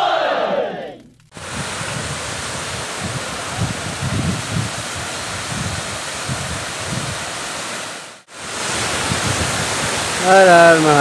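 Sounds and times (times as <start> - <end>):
wind rumble on microphone: 1.4 - 7.6, 8.4 - 11.0
stream rushing over rocks: 1.4 - 11.0.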